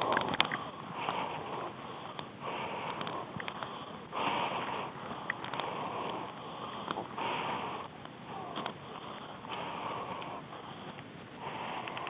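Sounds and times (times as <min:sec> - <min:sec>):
light clicks: 0:00.0 - 0:01.2, 0:05.0 - 0:07.1
person breathing: 0:00.0 - 0:12.0.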